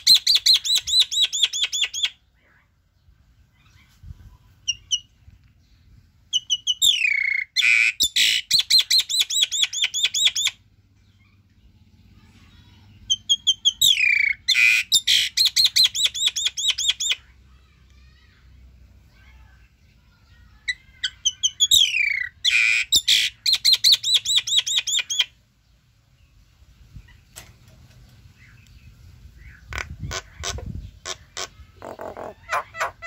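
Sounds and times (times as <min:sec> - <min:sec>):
bird calling: 0:06.3 - 0:11.6, 0:13.1 - 0:17.3, 0:20.6 - 0:25.4, 0:28.3 - 0:33.0.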